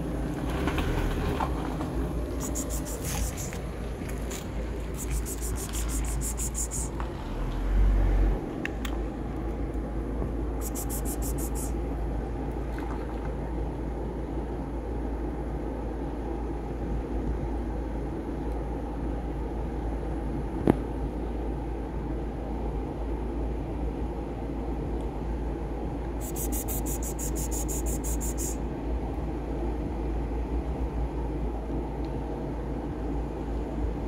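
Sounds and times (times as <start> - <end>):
low background rumble: 0.0 - 34.0
rapid high ticking: 2.4 - 3.6, 5.0 - 6.9.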